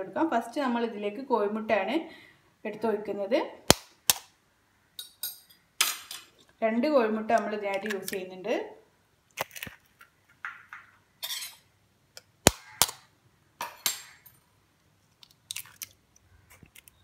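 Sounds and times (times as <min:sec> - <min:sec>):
eggs cracking against metal jar: 0:07.4 - 0:08.3, 0:09.3 - 0:14.4, 0:15.0 - 0:17.0.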